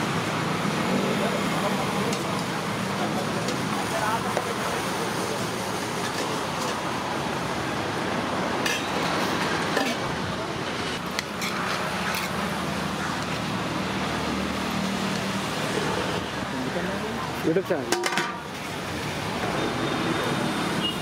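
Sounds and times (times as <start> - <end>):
roadside traffic noise: 0.0 - 21.0
steel vessels and ladle clinking: 8.6 - 9.1, 17.9 - 18.5.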